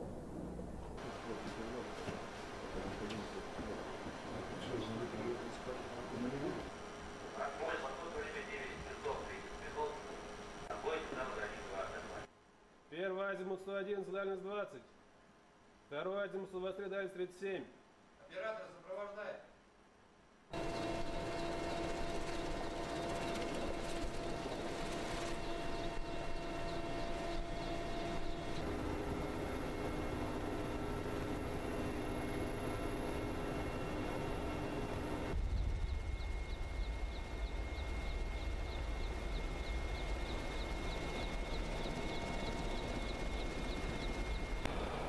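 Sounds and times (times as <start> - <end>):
helicopter rotor and turbine noise: 0.0 - 12.3, 20.5 - 45.0
high whine: 20.6 - 45.0.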